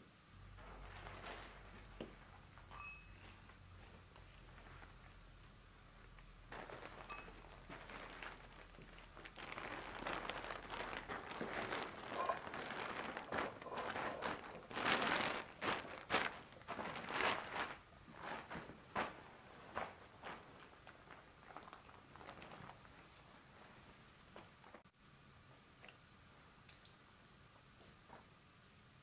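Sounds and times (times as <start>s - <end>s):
plastic bag rustling: 0.5s - 2.7s, 3.3s - 5.2s, 6.0s - 24.8s.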